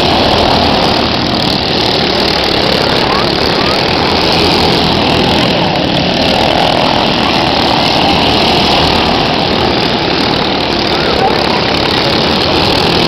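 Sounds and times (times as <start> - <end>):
racing kart engines droning: 0.0 - 13.0.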